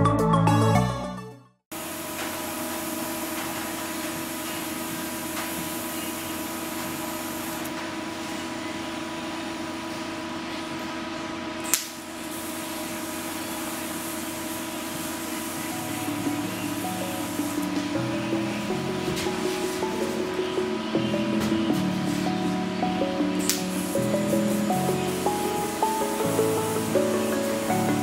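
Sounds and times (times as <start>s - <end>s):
welder arc crackling and hissing: 1.8s - 7.8s, 11.6s - 28.0s
steady hum: 1.8s - 28.0s
sharp click: 11.6s - 12.0s.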